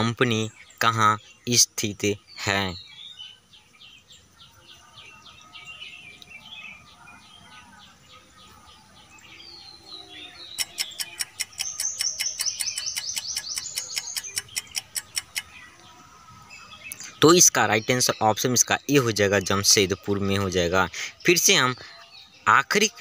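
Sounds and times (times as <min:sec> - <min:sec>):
birds chirping: 0:00.0 - 0:23.0
timer ticking with high chirp: 0:10.5 - 0:15.5.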